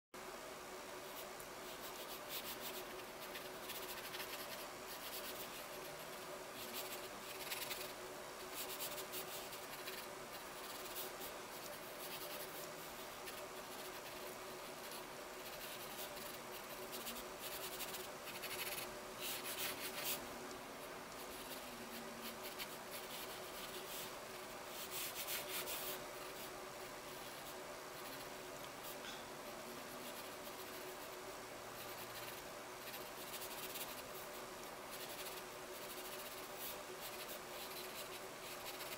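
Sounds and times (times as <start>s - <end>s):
pencil scratching on paper: 1.2s - 20.2s, 24.7s - 26.5s, 34.9s - 38.9s.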